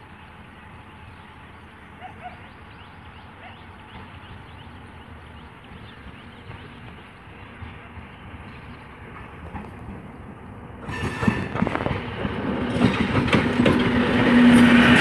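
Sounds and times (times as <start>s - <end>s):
birds chirping: 0.0s - 9.4s
train rumbling in the distance: 0.0s - 15.0s.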